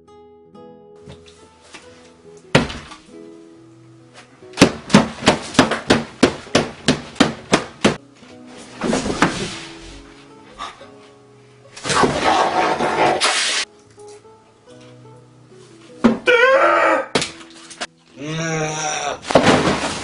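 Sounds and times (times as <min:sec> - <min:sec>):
plucked guitar tune: 0:00.0 - 0:04.6, 0:09.7 - 0:11.8, 0:13.7 - 0:16.3
hands slamming onto tabletop: 0:02.6 - 0:03.0.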